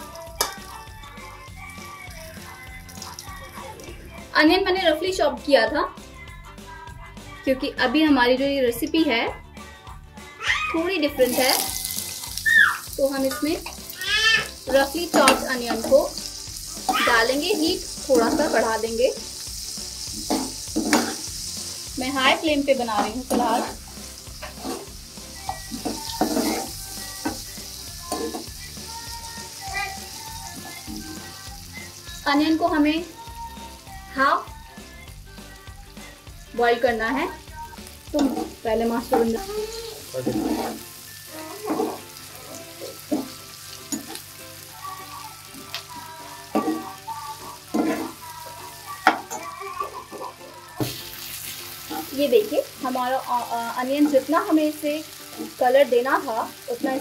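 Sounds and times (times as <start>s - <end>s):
onions sizzling in oil: 0.0s - 4.1s, 10.4s - 57.0s
spoon scraping a pan: 13.3s - 18.8s, 20.1s - 21.4s, 22.8s - 29.0s, 38.2s - 39.5s, 40.1s - 44.3s, 46.5s - 48.2s
spatula scraping a pan: 19.5s - 21.4s, 22.8s - 27.4s, 38.2s - 40.9s, 41.5s - 42.2s, 46.5s - 48.3s.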